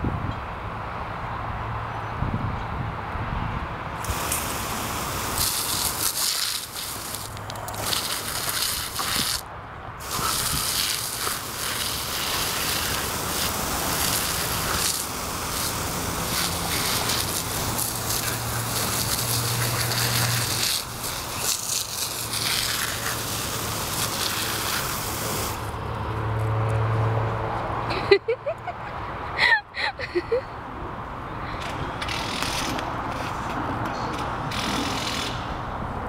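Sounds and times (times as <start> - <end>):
hose water jet spattering: 4.0 - 25.8, 34.5 - 35.4.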